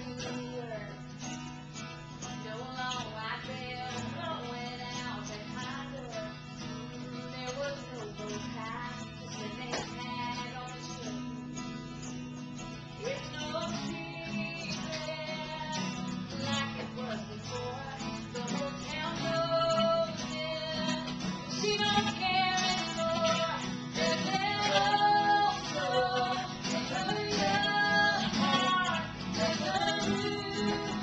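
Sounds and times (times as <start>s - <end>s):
woman singing: 0.0s - 12.0s, 12.9s - 31.0s
strummed acoustic guitar: 0.0s - 31.0s.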